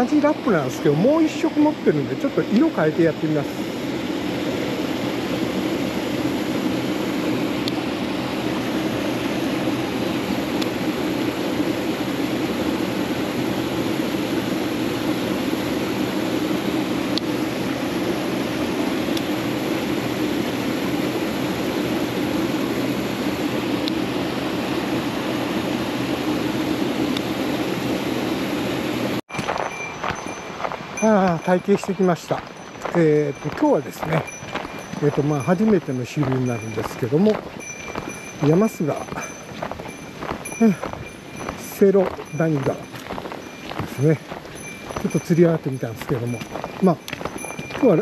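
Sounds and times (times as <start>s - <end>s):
stream rushing over rocks: 29.3s - 48.0s.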